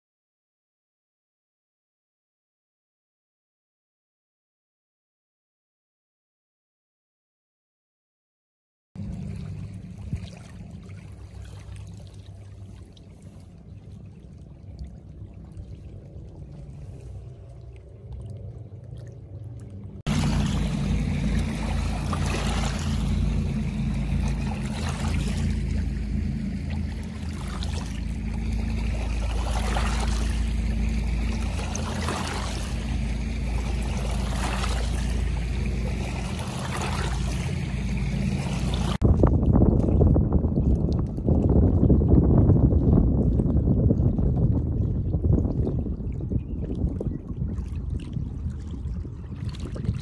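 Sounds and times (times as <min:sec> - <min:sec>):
waves lapping on stony shore: 0:09.0 - 0:17.7, 0:20.0 - 0:39.0
low drone: 0:09.0 - 0:39.0.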